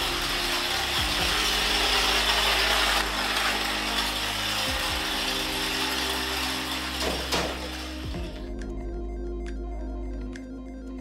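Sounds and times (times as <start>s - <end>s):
small toy motor running: 0.0s - 8.4s.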